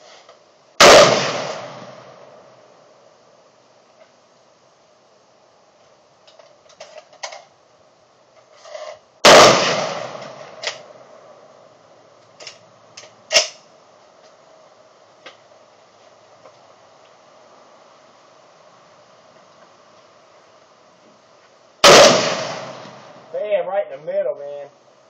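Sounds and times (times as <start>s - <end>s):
sharp crack: 0.3s - 2.6s, 8.7s - 11.0s, 12.3s - 13.7s, 21.8s - 23.4s
rifle shot with echo: 0.8s - 2.6s, 9.2s - 11.0s, 21.8s - 23.3s
small clicks and knocks: 6.2s - 7.5s.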